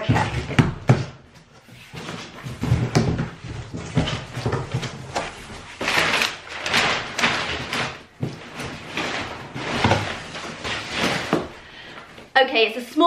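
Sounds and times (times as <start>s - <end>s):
cardboard scraping and knocking: 0.0s - 11.7s
packing paper rustling: 1.8s - 12.3s.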